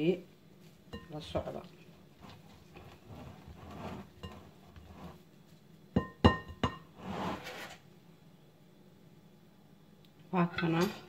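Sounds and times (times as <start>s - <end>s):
spatula scraping dough in bowl: 2.2s - 5.2s, 7.0s - 7.8s
spatula knocking glass bowl: 6.0s - 6.8s.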